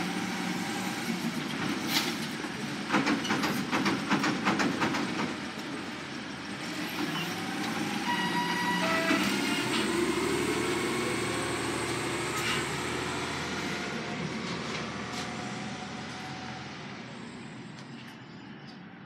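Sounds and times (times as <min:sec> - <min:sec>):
garbage truck engine accelerating: 0:05.3 - 0:17.7.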